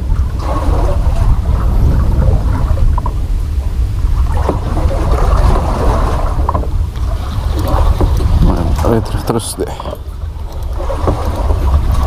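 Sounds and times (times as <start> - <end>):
water sloshing against boat: 0.0 - 12.0
wind rumbling on microphone: 0.0 - 12.0.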